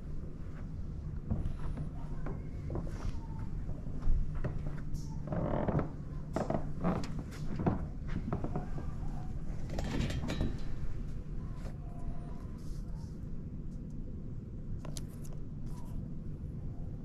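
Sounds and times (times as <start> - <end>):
scraping creaking sounds: 1.3 - 11.2.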